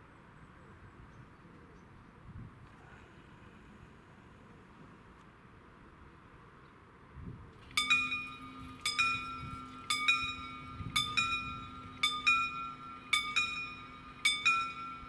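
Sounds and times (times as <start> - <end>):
low steady hum: 7.3 - 15.0
level crossing warning bell: 7.6 - 15.0.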